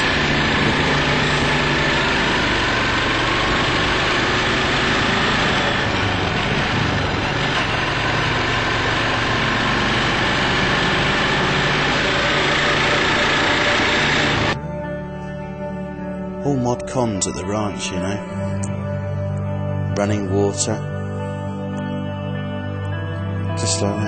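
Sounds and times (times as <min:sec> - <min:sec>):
quad bike engine running: 0:00.0 - 0:14.6
steady rushing noise: 0:00.0 - 0:14.6.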